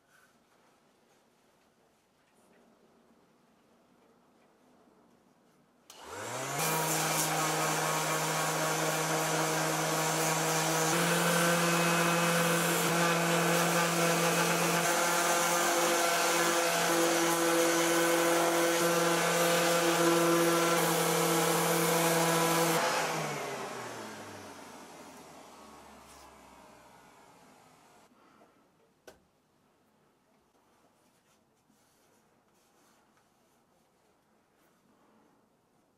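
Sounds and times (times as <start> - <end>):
power sander whining: 5.9 - 27.8.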